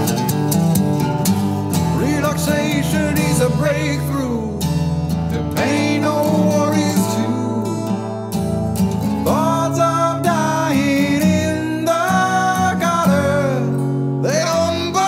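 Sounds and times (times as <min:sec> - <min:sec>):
acoustic guitar song with vocals: 0:00.0 - 0:15.0.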